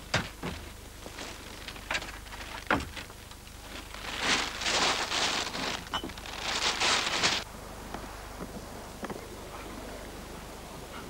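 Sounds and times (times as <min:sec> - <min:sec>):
refuse sacks rustling and crackling: 0:00.0 - 0:07.5.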